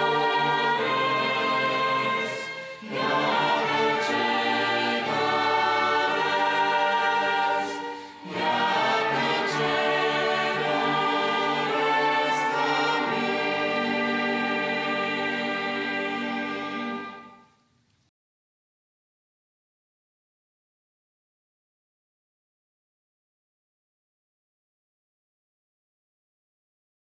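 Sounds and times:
mixed choir singing hymn: 0.0 - 17.4
string orchestra: 0.0 - 17.6.

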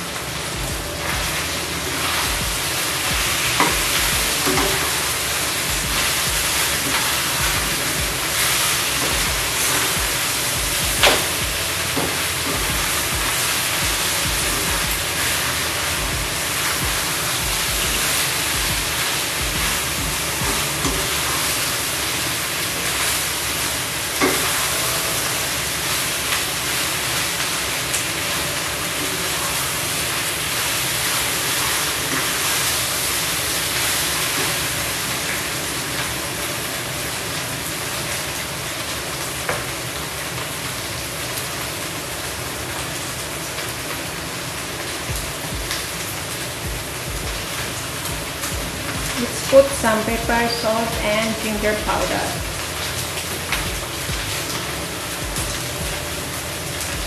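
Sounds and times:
food sizzling in a wok: 0.0 - 57.0.

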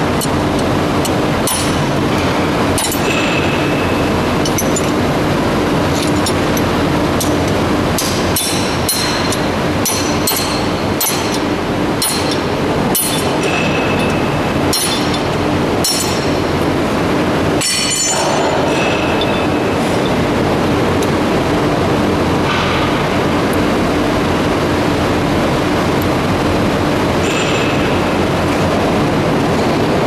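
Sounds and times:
machinery hum: 0.0 - 30.0
steel rod clinking on metal rollers: 1.0 - 1.8, 2.8 - 5.0, 5.9 - 16.5, 17.6 - 20.2.

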